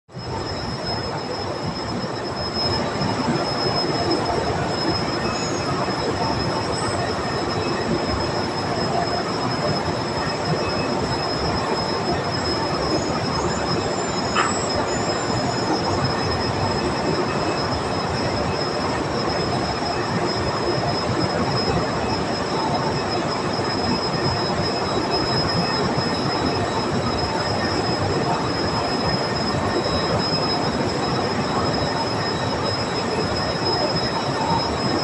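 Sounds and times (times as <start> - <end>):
high whine: 0.1 - 35.0
drilling rig machinery noise: 0.2 - 35.0
short squeak: 13.0 - 16.2.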